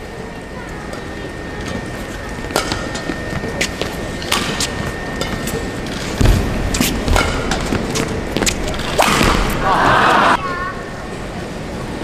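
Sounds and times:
arena crowd hubbub: 0.0s - 12.0s
racket striking shuttlecock: 2.5s - 9.6s.

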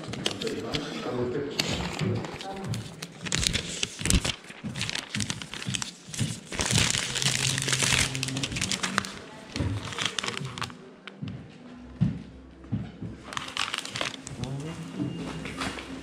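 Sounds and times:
plastic wrapping crinkling: 0.0s - 0.9s, 1.8s - 10.9s, 13.2s - 16.0s.

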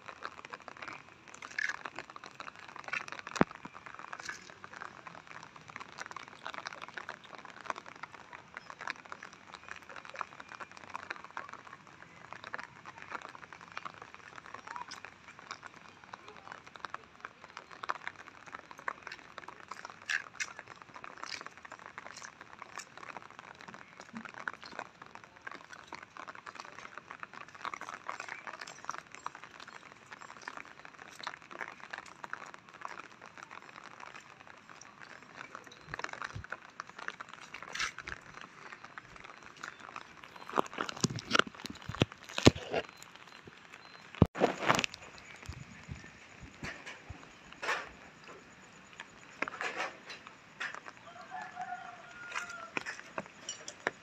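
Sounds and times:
footsteps on wet path: 16.6s - 47.4s, 50.6s - 54.0s.

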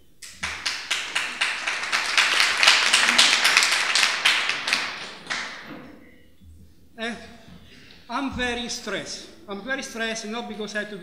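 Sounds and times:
audience applauding: 0.2s - 5.8s.

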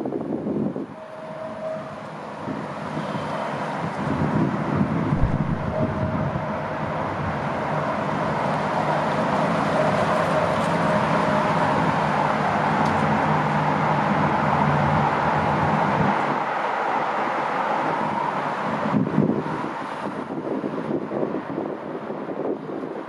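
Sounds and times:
engine running with low hum: 0.0s - 16.6s.

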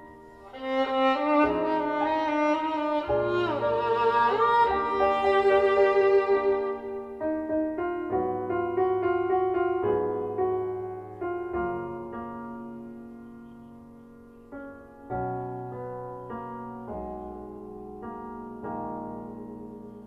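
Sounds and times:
violin melody: 0.0s - 9.6s
piano chords: 0.0s - 20.0s.

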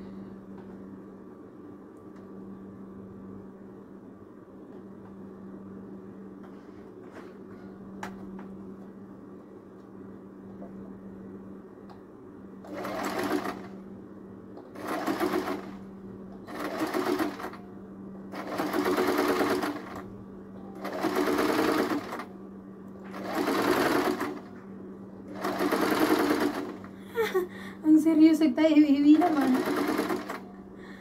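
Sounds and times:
steady low hum: 0.0s - 31.0s
sewing machine stitching: 12.7s - 13.7s, 14.8s - 15.8s, 16.5s - 17.6s, 18.4s - 20.0s, 20.8s - 22.3s, 23.1s - 24.5s, 25.3s - 26.8s, 29.2s - 30.4s.

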